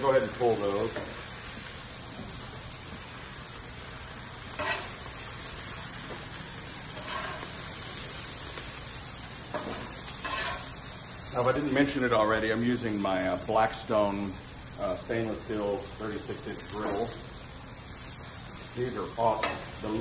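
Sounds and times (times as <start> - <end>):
food sizzling on a griddle: 0.0 - 20.0
metal spatula scraping and clinking: 4.6 - 5.0, 7.0 - 7.5, 9.5 - 10.7.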